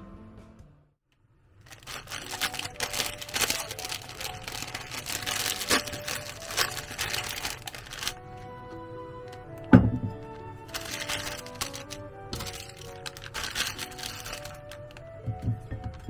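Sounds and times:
plastic wrapper crinkling and tearing: 1.5s - 8.4s, 10.2s - 15.3s.

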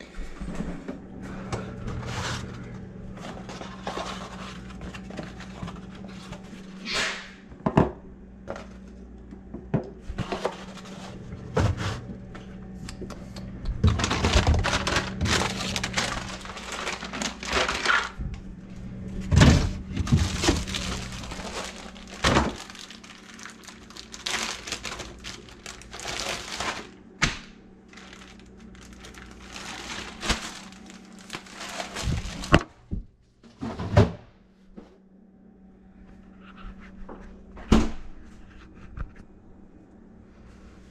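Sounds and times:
steady low hum: 0.0s - 40.9s
items knocking in a refrigerator: 7.5s - 8.7s, 13.7s - 18.1s, 19.2s - 23.4s, 31.7s - 34.3s
plastic packaging crinkling: 13.8s - 18.2s, 19.5s - 27.1s, 27.8s - 32.6s.

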